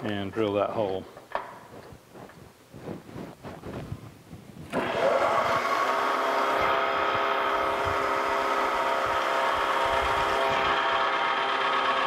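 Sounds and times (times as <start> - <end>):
drill bit drilling steel: 4.8 - 12.0
milling machine spindle whine: 4.8 - 12.0.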